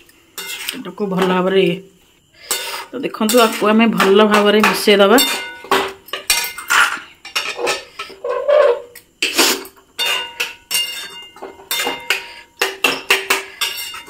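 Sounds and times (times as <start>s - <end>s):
spoon clinking in cooking pan: 3.3s - 7.5s, 10.0s - 14.0s.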